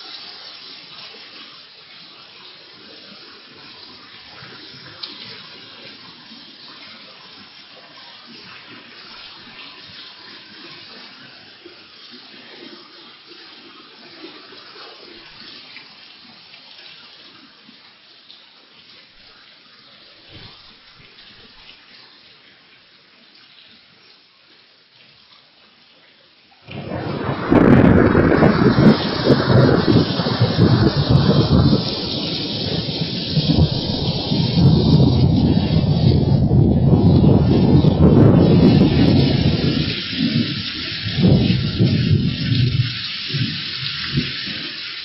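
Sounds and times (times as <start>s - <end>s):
heavy rain pouring: 0.0s - 18.2s, 26.6s - 45.0s
thunder clap rumbling: 26.7s - 44.7s.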